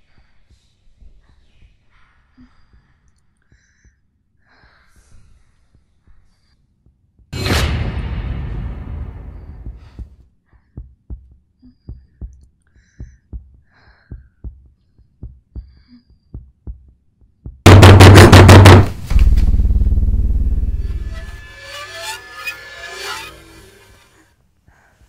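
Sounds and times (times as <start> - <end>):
heartbeat thuds: 9.5 - 19.8
loud low drone: 17.7 - 23.9
rapid loud banging: 17.7 - 24.2.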